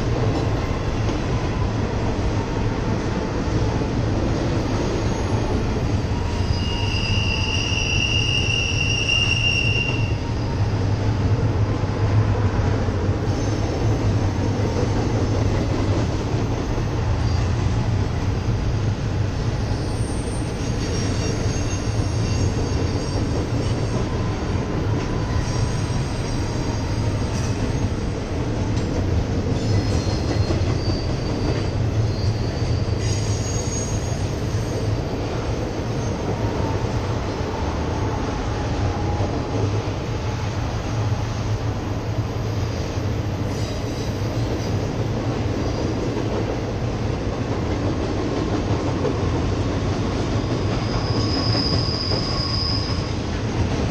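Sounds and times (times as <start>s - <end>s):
freight cars rumbling over bridge: 0.0s - 53.9s
high wheel squeal: 4.7s - 10.8s, 19.6s - 24.4s, 25.1s - 28.1s, 29.5s - 35.0s, 50.4s - 53.3s.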